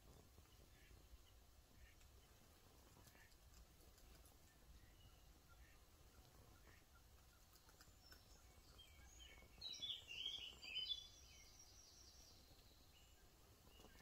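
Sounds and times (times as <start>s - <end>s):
faint outdoor background noise: 0.0s - 14.0s
bird chirping and trilling: 7.9s - 13.2s.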